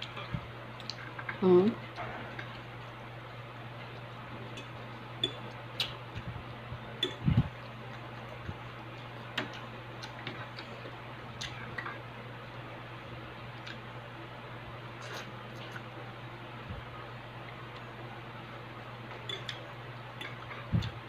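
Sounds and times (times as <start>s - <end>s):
chewing and mouth clicks: 0.0s - 2.7s, 3.8s - 6.3s, 7.0s - 10.8s, 11.4s - 12.0s, 13.6s - 13.9s, 15.0s - 15.9s, 19.2s - 19.6s
steady low hum: 0.0s - 21.0s
fork ticking against a plate: 4.5s - 6.0s.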